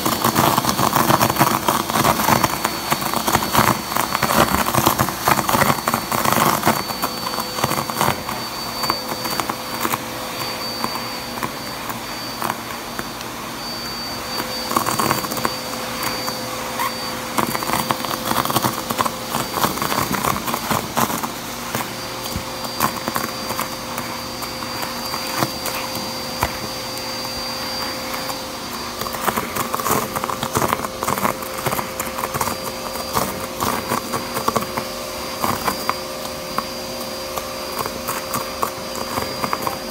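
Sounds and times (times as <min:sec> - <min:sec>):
paper crackling in vacuum hose: 0:00.0 - 0:39.9
vacuum cleaner whining: 0:00.0 - 0:39.9.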